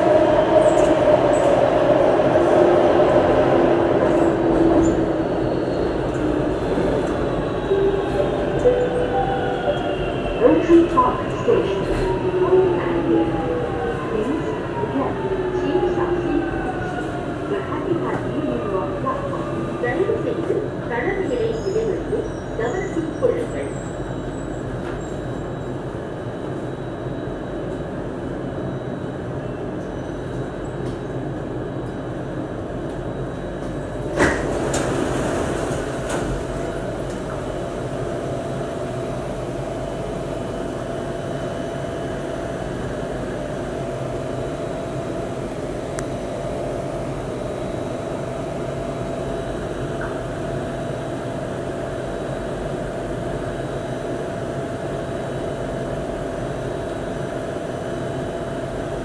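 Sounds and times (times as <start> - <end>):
train car humming: 0.0 - 59.0
train doors clunking open: 33.7 - 37.4.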